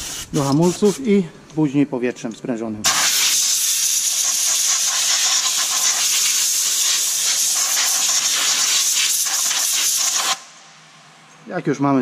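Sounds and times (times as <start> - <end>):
pressurised jet hissing: 2.9 - 10.7.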